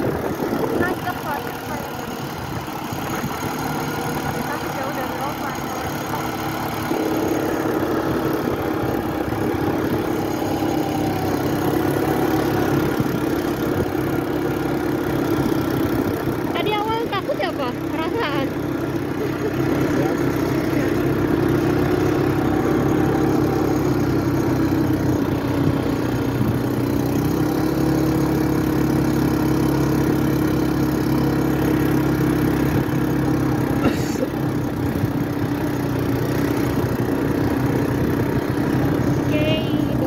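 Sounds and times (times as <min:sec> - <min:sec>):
quad bike engine running: 0:00.0 - 0:40.0.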